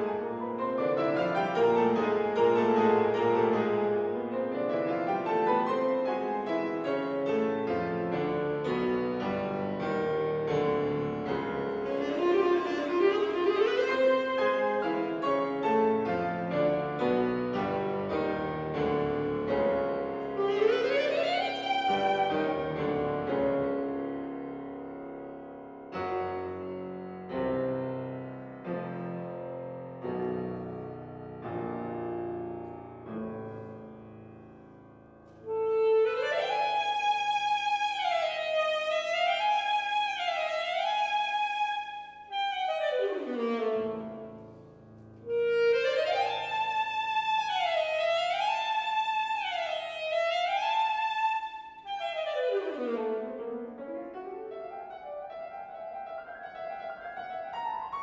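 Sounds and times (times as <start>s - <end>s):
alto saxophone: 0.0s - 23.8s, 35.2s - 55.0s
piano chords: 0.0s - 58.0s.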